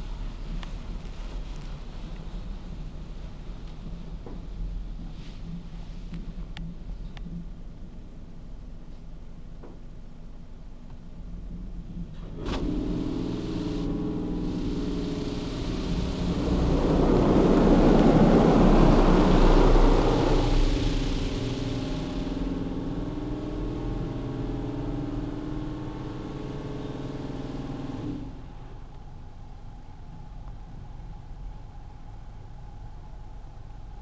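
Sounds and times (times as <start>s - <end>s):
car wash dryer blowers: 11.9s - 33.8s.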